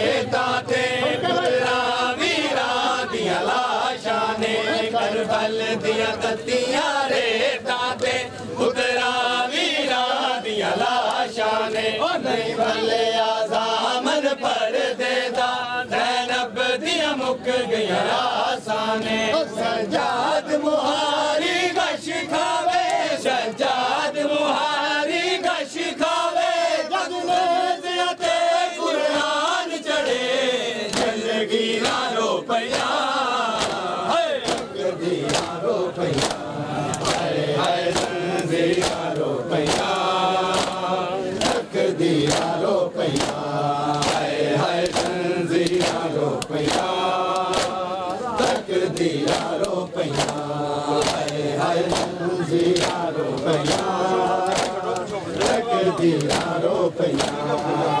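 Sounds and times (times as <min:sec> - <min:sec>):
crowd of men chanting: 0:00.0 - 0:58.0
hands slapping chests: 0:30.9 - 0:31.2, 0:31.8 - 0:32.0, 0:33.5 - 0:57.7.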